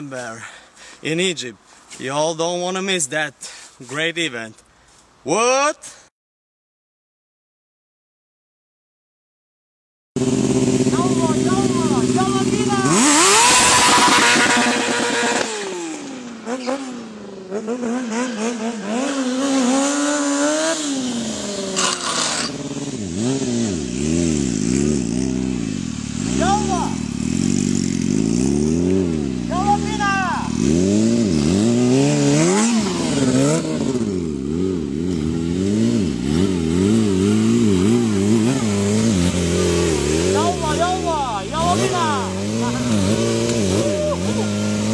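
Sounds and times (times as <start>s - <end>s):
motorcycle engine revving: 10.2s - 44.9s.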